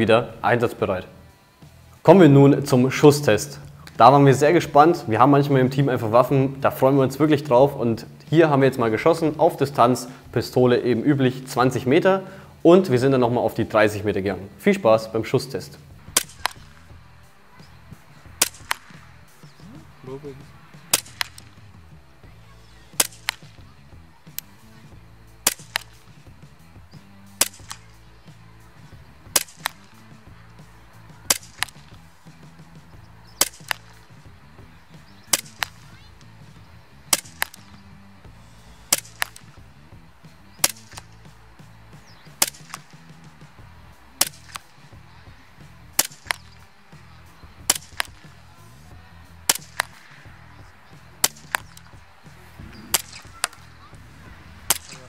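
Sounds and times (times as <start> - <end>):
background music with low beat: 0.0 - 55.0
pellet hitting cardboard target: 16.0 - 16.8, 18.3 - 19.0, 20.9 - 21.6, 22.9 - 24.5, 25.4 - 26.3, 27.4 - 27.9, 29.3 - 30.0, 31.2 - 32.0, 33.4 - 34.2, 35.2 - 36.0, 37.1 - 37.8, 38.9 - 39.6, 40.6 - 41.3, 42.3 - 43.0, 44.2 - 44.8, 45.9 - 46.6, 47.6 - 48.3, 49.5 - 50.3, 51.2 - 52.0
airsoft pistol shots: 16.1 - 16.9, 18.4 - 19.1, 20.9 - 21.6, 22.9 - 23.6, 25.4 - 26.2, 27.3 - 28.0, 29.3 - 30.0, 31.2 - 32.0, 33.3 - 34.2, 35.2 - 36.0, 37.1 - 37.8, 38.9 - 39.6, 40.6 - 41.2, 42.2 - 43.0, 44.2 - 44.7, 46.0 - 46.7, 47.6 - 48.2, 49.5 - 50.2, 51.2 - 52.0, 52.8 - 53.6, 54.6 - 55.0.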